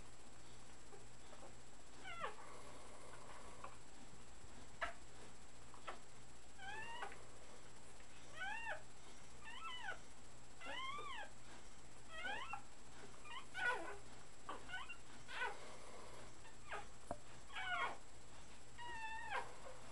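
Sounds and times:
puppies whining: 0:01.2 - 0:03.8, 0:06.6 - 0:07.3, 0:08.1 - 0:08.8, 0:09.4 - 0:10.0, 0:10.6 - 0:19.9.

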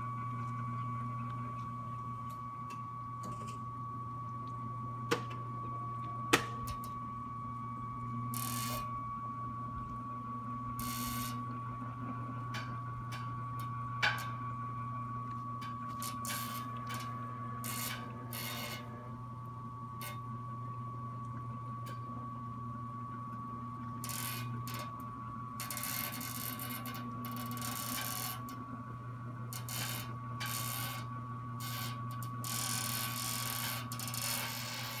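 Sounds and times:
electric winch motor humming: 0:00.0 - 0:35.0.

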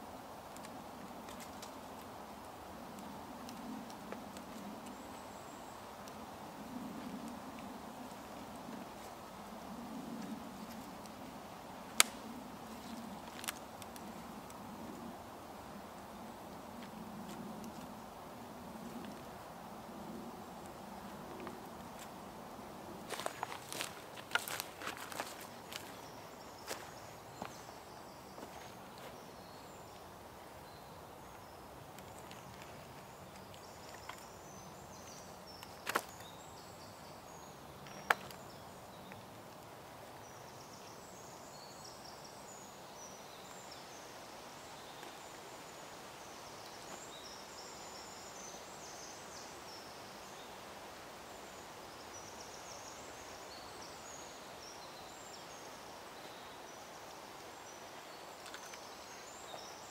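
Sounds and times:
steady background hiss: 0:00.0 - 0:59.9
small birds chirping: 0:23.0 - 0:50.6.

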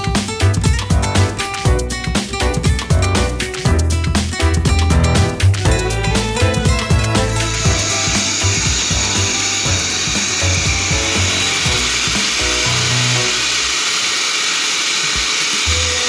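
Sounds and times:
background music: 0:00.0 - 0:14.0
blow dryer running: 0:05.7 - 0:16.0.

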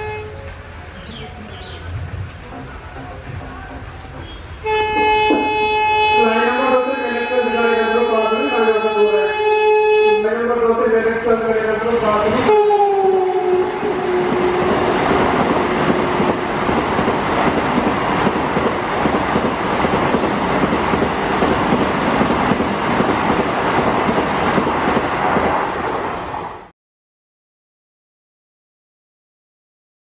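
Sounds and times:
train horn: 0:00.0 - 0:01.5, 0:02.5 - 0:10.7, 0:11.5 - 0:16.5
train passing at speed: 0:00.0 - 0:26.7.

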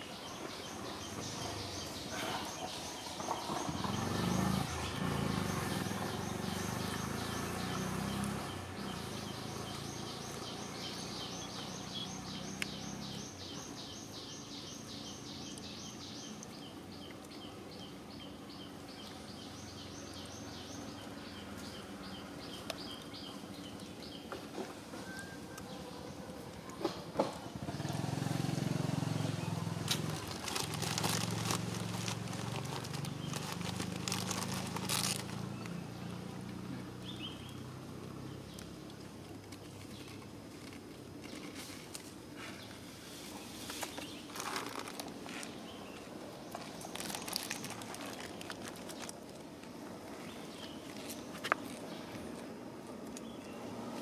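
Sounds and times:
dry leaves crackling and rustling: 0:27.5 - 0:35.8, 0:39.2 - 0:42.2, 0:43.1 - 0:52.2.

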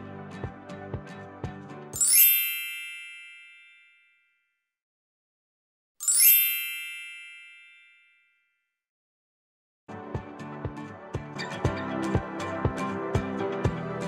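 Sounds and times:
shimmering bell-like chime: 0:02.0 - 0:04.0, 0:06.0 - 0:08.1.

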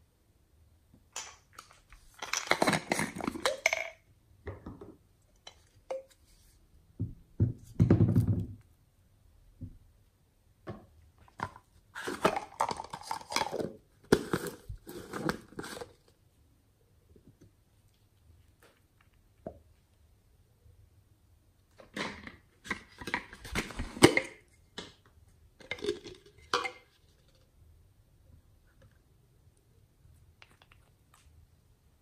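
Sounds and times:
plastic bottles clicking and rattling: 0:01.2 - 0:04.9, 0:11.2 - 0:16.0, 0:21.8 - 0:25.0, 0:25.6 - 0:27.5.

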